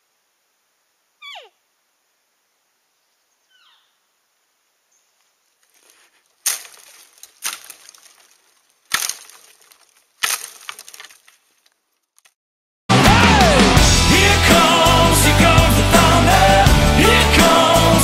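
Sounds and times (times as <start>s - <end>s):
stick whacking dry branches: 5.8s - 11.4s.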